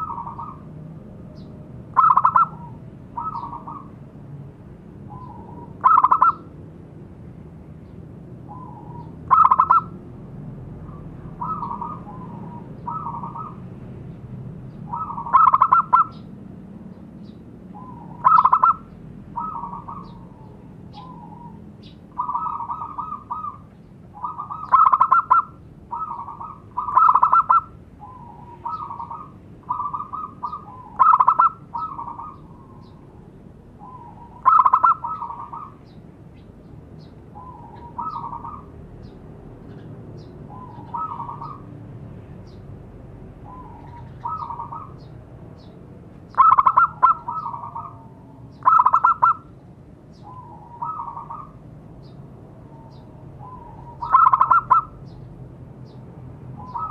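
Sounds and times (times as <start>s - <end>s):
doves cooing: 0.0s - 0.8s, 1.9s - 4.0s, 5.1s - 6.6s, 8.5s - 10.0s, 10.9s - 13.6s, 14.9s - 16.2s, 17.7s - 33.2s, 33.8s - 36.0s, 37.3s - 38.8s, 40.5s - 41.7s, 43.4s - 45.1s, 46.3s - 49.5s, 50.2s - 51.6s, 52.7s - 55.0s, 56.6s - 56.9s.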